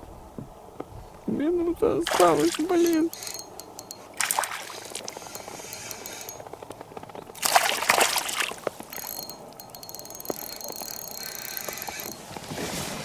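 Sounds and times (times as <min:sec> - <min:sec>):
water splashing: 0:02.0 - 0:06.3, 0:07.4 - 0:09.1
fishing reel whirring: 0:02.3 - 0:06.4, 0:07.4 - 0:12.3.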